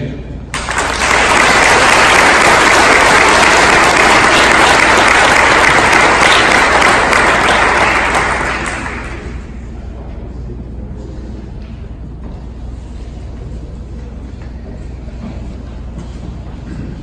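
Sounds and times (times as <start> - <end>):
audience applauding: 0.5 - 9.6.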